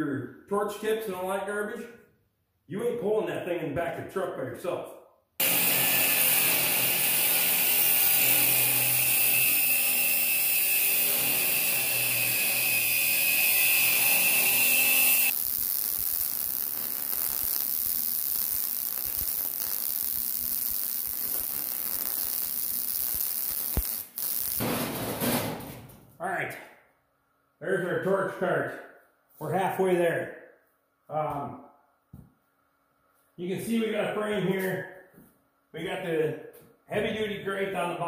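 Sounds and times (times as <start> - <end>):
angle grinder cutting steel: 5.4 - 24.6
welding hiss: 5.4 - 24.6.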